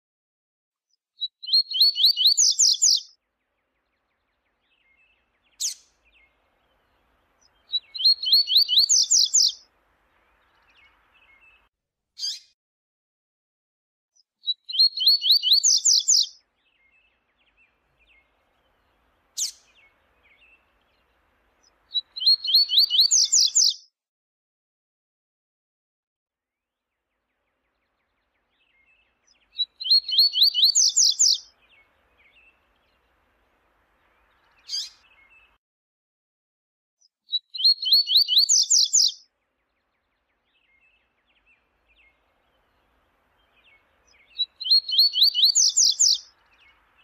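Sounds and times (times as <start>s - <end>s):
bird singing high notes: 43.4s - 47.0s.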